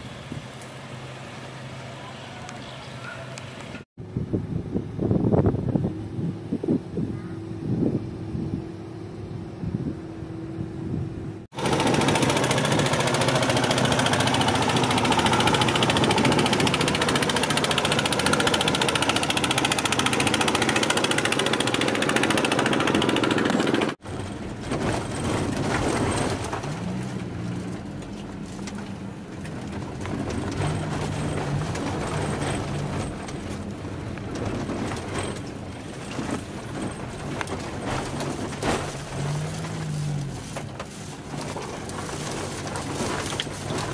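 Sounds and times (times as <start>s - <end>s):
car driving on road: 23.5s - 43.9s.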